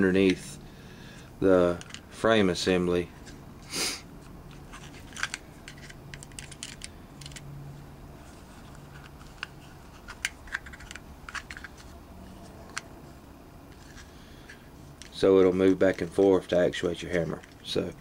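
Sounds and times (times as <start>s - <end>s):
pistol parts clicking and tapping: 1.8s - 2.1s, 4.2s - 7.5s.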